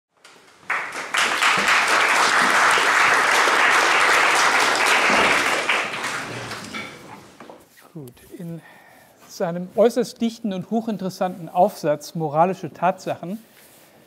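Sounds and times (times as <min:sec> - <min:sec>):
audience applauding: 0:00.2 - 0:07.1.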